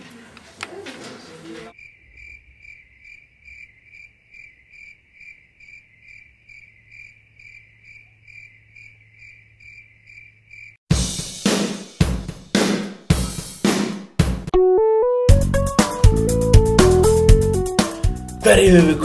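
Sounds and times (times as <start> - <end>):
crickets chirping: 1.7 - 10.8.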